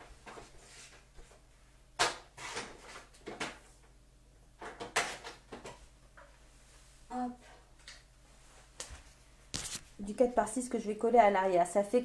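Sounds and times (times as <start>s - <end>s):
card stock scraping swishes: 9.6s - 9.9s.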